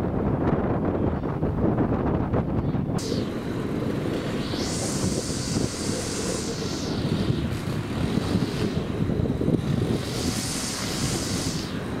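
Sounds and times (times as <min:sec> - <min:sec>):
outdoor background rumble: 0:00.0 - 0:12.0
wind buffeting microphone: 0:00.0 - 0:12.0
high hiss: 0:03.0 - 0:12.0.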